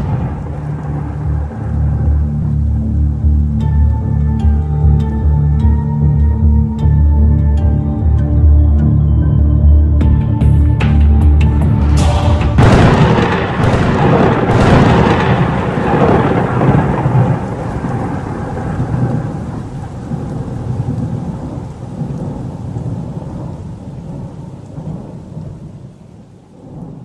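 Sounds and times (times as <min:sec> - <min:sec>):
rolling thunder: 0:00.0 - 0:03.7, 0:11.3 - 0:27.0
steady rain: 0:00.0 - 0:27.0.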